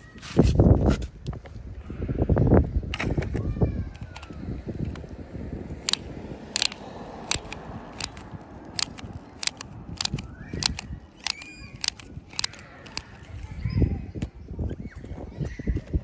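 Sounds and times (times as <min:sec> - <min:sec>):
sharp plastic clicks: 0:05.8 - 0:13.6.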